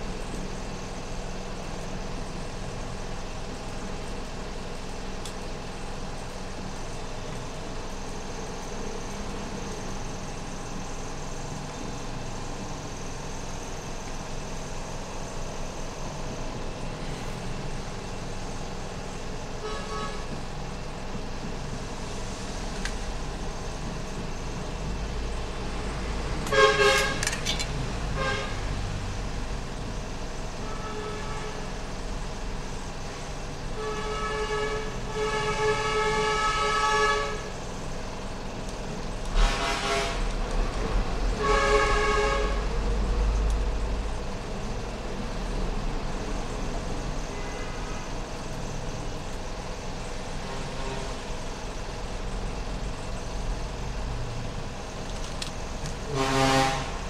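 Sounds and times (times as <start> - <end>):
vehicle horns tooting: 19.6 - 20.3, 26.5 - 27.4, 28.2 - 28.6, 30.6 - 31.6, 33.8 - 37.5, 39.4 - 40.3, 41.4 - 42.7, 56.1 - 57.0.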